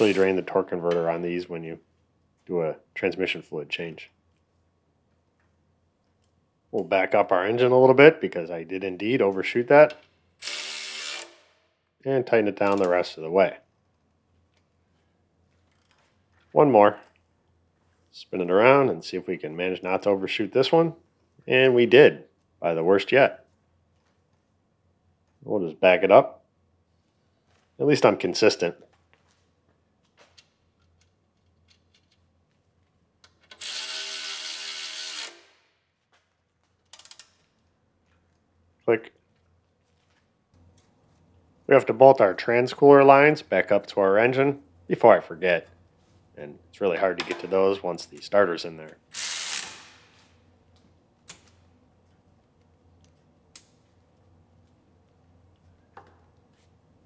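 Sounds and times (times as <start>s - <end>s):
power ratchet running: 10.4s - 11.4s, 33.6s - 35.5s, 49.1s - 49.9s
ratchet clicks: 33.2s - 35.5s
low steady hum: 35.8s - 49.2s.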